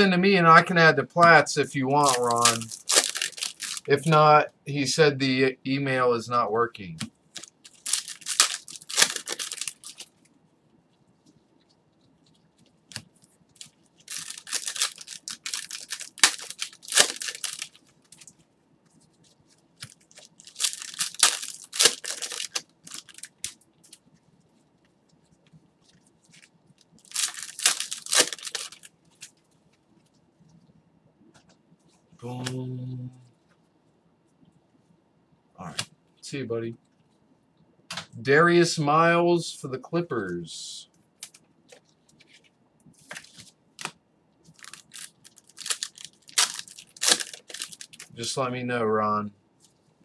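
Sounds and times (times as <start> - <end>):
foil wrappers tearing and crinkling: 1.9 - 4.0, 7.4 - 10.2, 13.6 - 18.3, 19.8 - 24.0, 26.3 - 29.3, 44.5 - 48.2.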